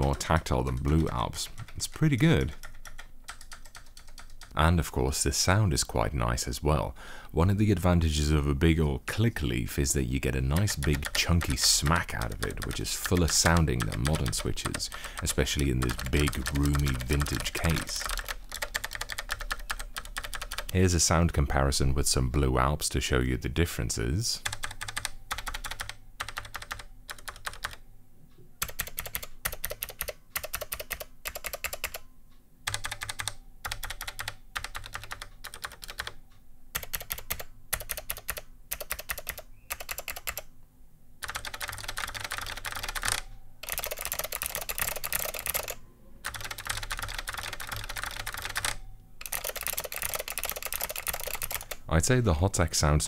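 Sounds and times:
fast clicky keyboard typing: 0.0 - 4.6, 10.3 - 20.8, 24.4 - 27.8, 28.6 - 32.0, 32.7 - 36.2, 36.8 - 40.5, 41.2 - 51.8.

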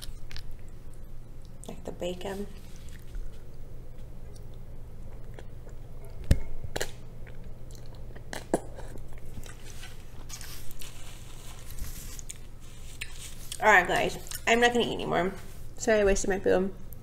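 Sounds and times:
noodles being chewed: 0.0 - 1.8, 2.5 - 14.6
steady low hum: 0.0 - 17.0
wet mouth clicks: 5.2 - 9.0.

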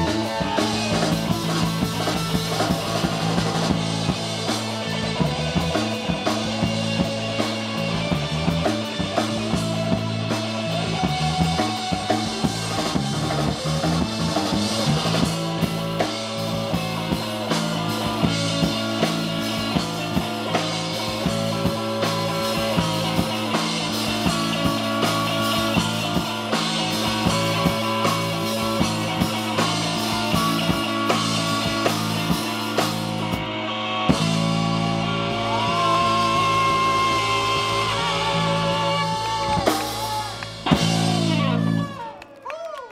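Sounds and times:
drum kit beat: 0.0 - 42.0
guitar: 0.0 - 42.9.

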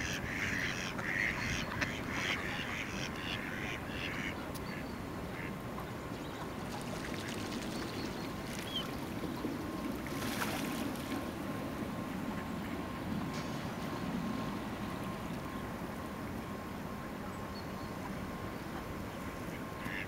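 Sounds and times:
ducks quacking: 0.0 - 5.6, 19.4 - 20.0.

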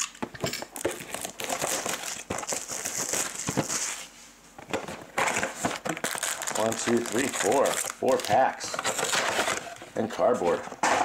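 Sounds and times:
plastic wrapping crinkling and tearing: 0.7 - 4.1, 5.2 - 9.8.

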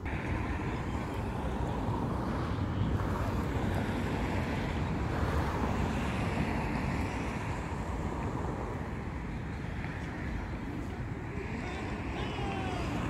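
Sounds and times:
wind rumbling on microphone: 0.0 - 13.0.

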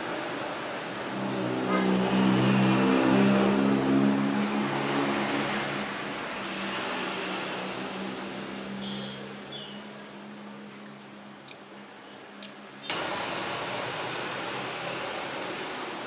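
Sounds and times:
vehicle engine passing: 1.1 - 11.0.

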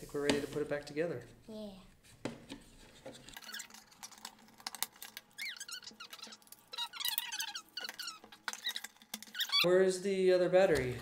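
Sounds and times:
plastic rubbing squeaks: 2.9 - 4.2, 4.8 - 9.7.

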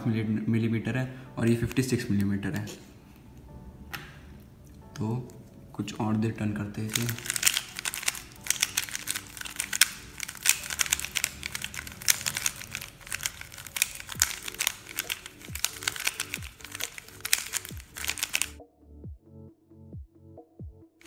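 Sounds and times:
clacking of puzzle cube turning: 6.9 - 18.6.

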